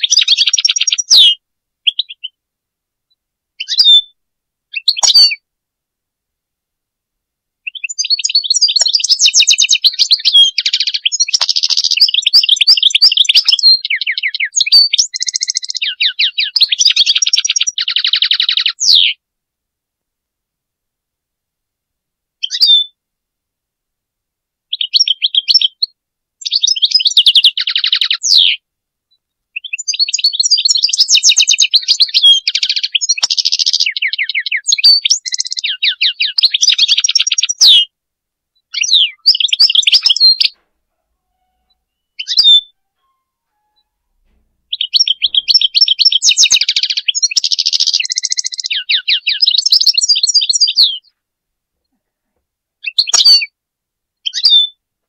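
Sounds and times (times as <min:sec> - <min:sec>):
goldfinch twittering and trilling: 0:00.0 - 0:02.2, 0:03.6 - 0:04.0, 0:04.8 - 0:05.4, 0:07.7 - 0:19.1, 0:24.8 - 0:28.6, 0:29.6 - 0:37.9, 0:38.7 - 0:40.5, 0:42.0 - 0:42.7, 0:44.7 - 0:51.1, 0:54.2 - 0:54.7.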